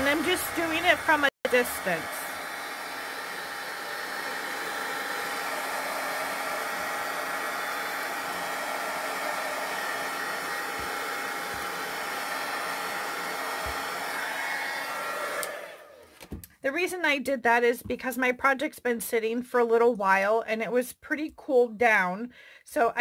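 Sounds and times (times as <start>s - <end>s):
heat gun fan blowing: 0.0s - 16.1s.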